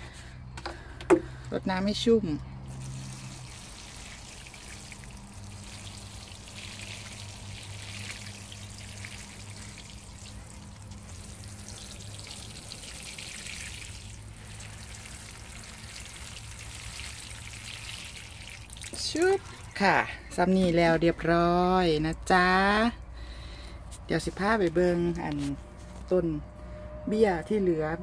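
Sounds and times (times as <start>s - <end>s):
water sprinkling onto soil: 2.6s - 20.0s.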